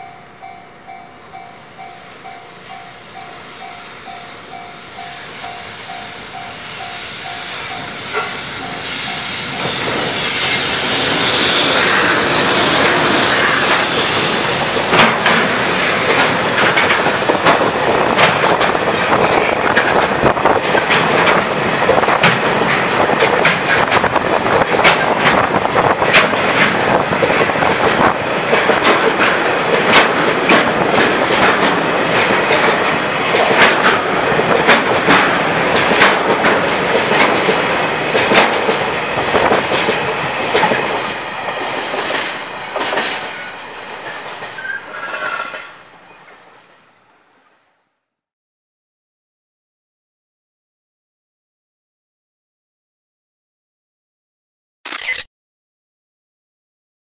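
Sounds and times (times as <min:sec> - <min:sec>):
freight train rumbling past: 0:00.0 - 0:47.8
train wheels clicking over rail joints: 0:05.0 - 0:45.8.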